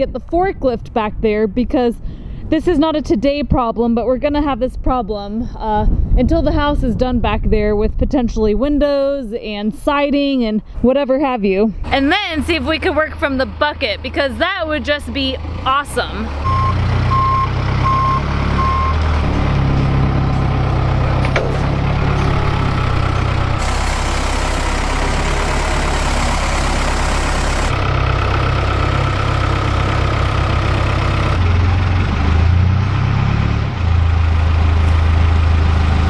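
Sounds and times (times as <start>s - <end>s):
diesel engine running: 11.5s - 36.0s
back-up alarm beeping: 16.4s - 19.1s.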